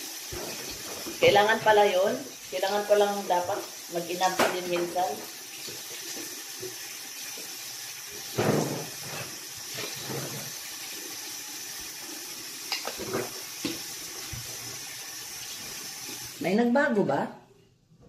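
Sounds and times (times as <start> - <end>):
tap running into a sink: 12.7 - 14.6.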